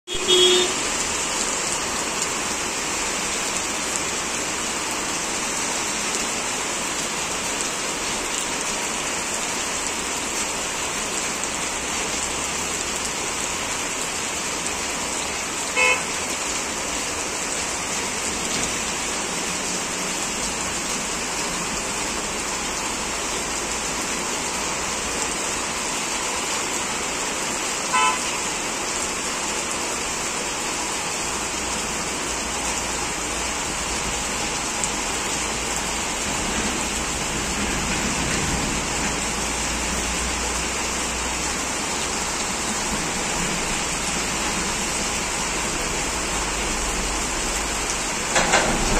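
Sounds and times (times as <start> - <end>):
vehicle horn toots: 0.1 - 0.9, 15.7 - 16.2, 27.9 - 28.5
heavy rain hiss: 0.1 - 48.9.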